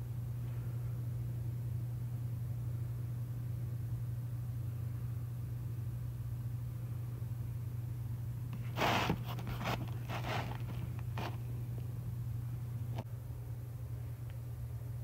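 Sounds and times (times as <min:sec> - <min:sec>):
steady low hum: 0:00.0 - 0:15.0
cardboard box scraping: 0:08.6 - 0:11.4.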